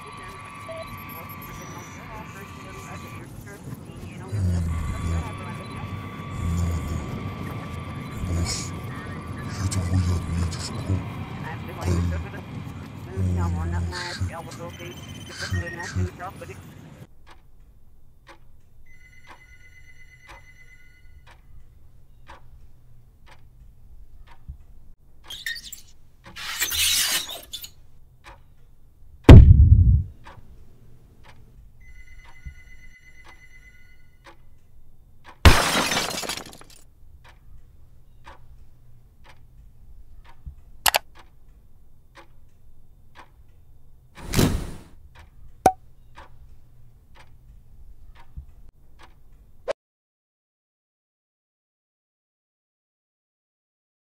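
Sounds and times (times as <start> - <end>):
clock ticking: 0.0 - 26.4, 27.6 - 35.5, 36.1 - 49.7
sharp clicks: 17.1 - 19.4, 22.1 - 30.6, 36.7 - 49.7
deep boom falling in pitch: 29.3 - 30.1.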